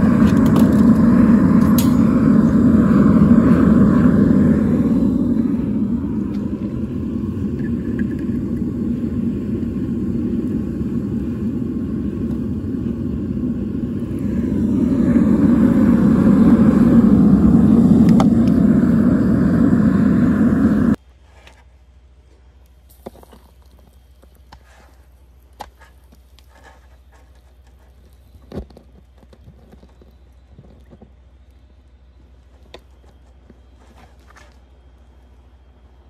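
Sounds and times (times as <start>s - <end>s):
furnace burner rushing: 0.0s - 21.0s.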